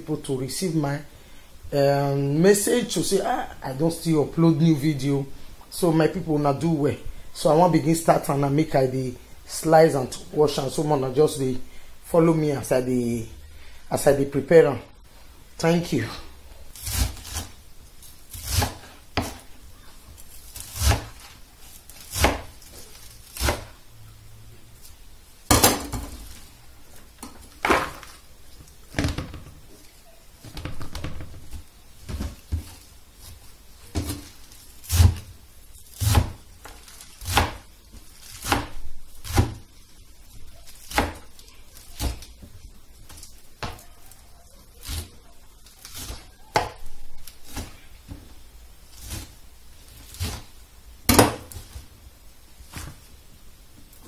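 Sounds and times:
knife chopping on a board: 18.4s - 19.4s, 22.1s - 22.5s.

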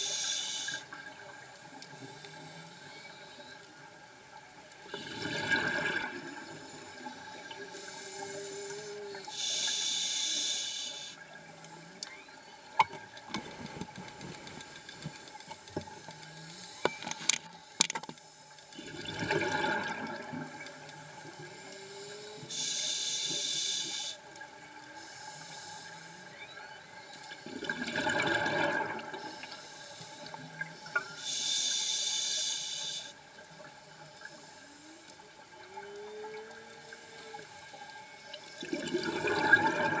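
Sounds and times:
regulator inhalation hiss: 0.0s - 1.0s, 6.6s - 11.2s, 21.6s - 24.3s, 25.0s - 26.3s, 29.2s - 33.2s
exhaled bubbles gurgling: 4.8s - 9.4s, 18.8s - 21.6s, 27.4s - 29.6s, 38.4s - 40.0s.

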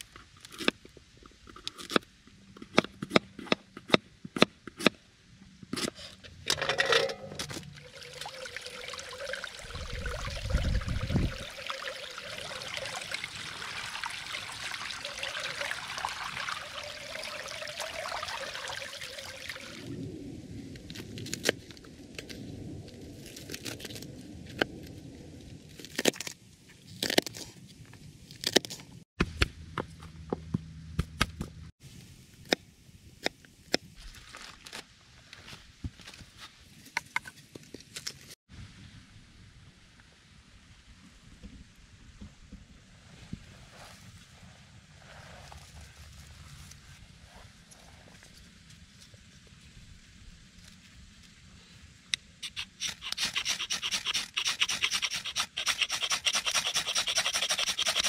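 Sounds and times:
water running: 7.7s - 19.9s.

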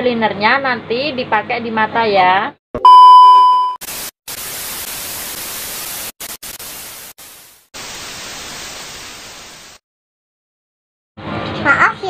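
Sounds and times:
tv static hiss: 3.8s - 9.8s.

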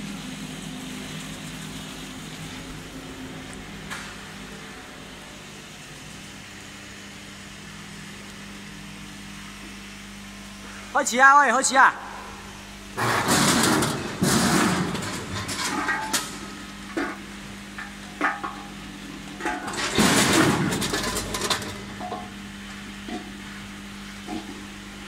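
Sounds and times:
machine hum: 0.0s - 25.0s
vegetable chunks clattering in hoppers: 13.0s - 17.2s, 19.4s - 22.2s.

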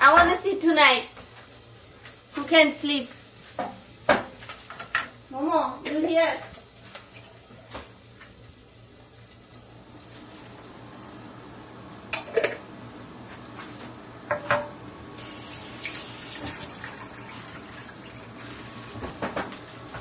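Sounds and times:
dishes clinking: 12.1s - 12.6s
tap running into a sink: 14.3s - 17.5s, 18.9s - 20.0s.

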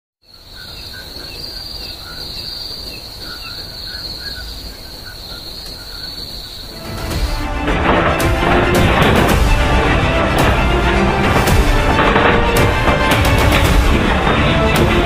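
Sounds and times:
crickets chirping: 0.2s - 7.4s.

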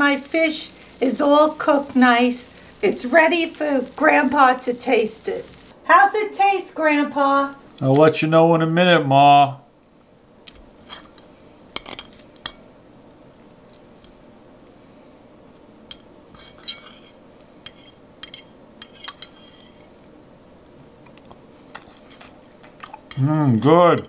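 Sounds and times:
fork clinking on ceramic plate: 15.9s - 19.9s.

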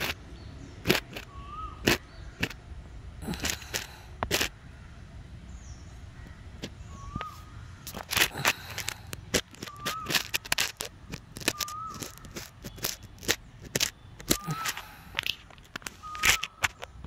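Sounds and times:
sharp clicks: 0.8s - 2.6s, 3.2s - 4.5s, 6.6s - 17.0s.

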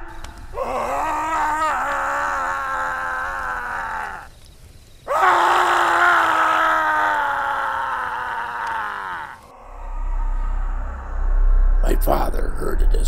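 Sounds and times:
man screaming: 0.5s - 4.3s, 5.1s - 11.0s.

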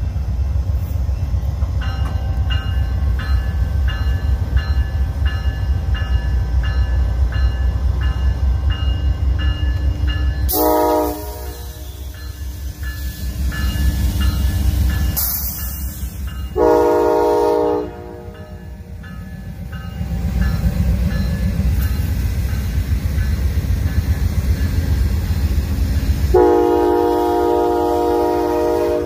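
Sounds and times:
diesel locomotives rumbling: 0.0s - 29.0s
locomotive bell ringing: 1.2s - 26.1s
train horn: 10.5s - 12.3s, 16.6s - 18.7s, 26.3s - 29.0s.

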